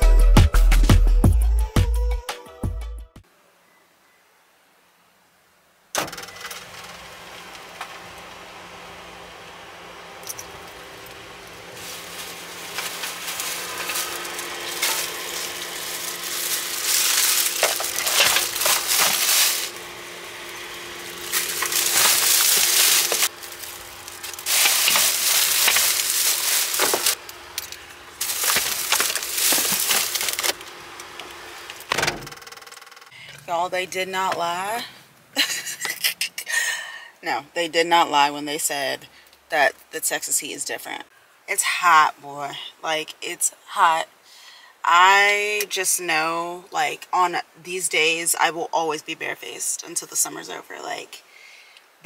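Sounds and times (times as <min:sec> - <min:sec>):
steady low hum: 0:06.5 - 0:36.0
plastic bags rustling: 0:10.3 - 0:31.9.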